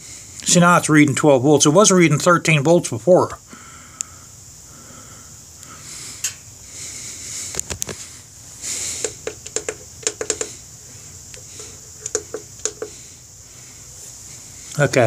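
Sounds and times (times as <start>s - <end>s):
plastic buttons clicking: 9.0s - 10.5s.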